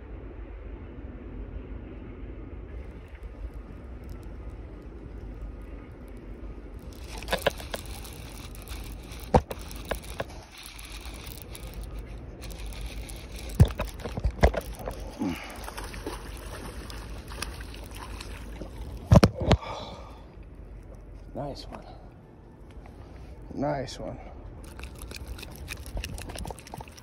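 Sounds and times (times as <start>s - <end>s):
wind rumbling on microphone: 0.0s - 19.8s.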